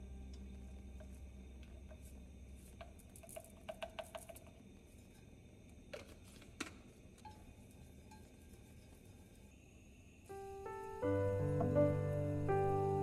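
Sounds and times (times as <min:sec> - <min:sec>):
kitchenware clinks and taps: 0:02.8 - 0:04.5.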